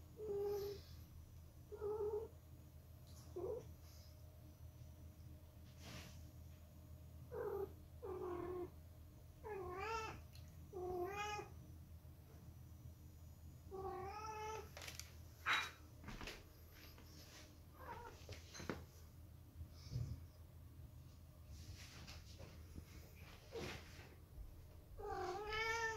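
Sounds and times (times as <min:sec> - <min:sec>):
cat meowing: 0:25.0 - 0:25.9.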